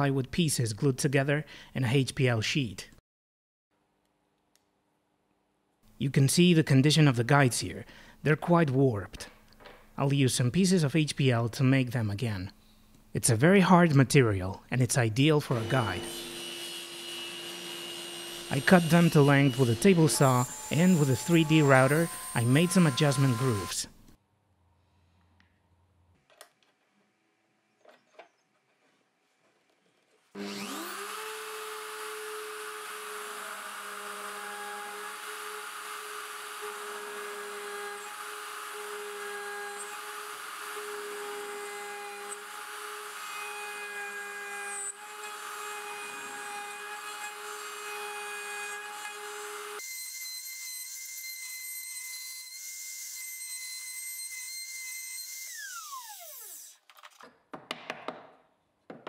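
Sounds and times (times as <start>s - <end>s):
electric router milling: 15.5s - 23.8s, 30.4s - 56.8s.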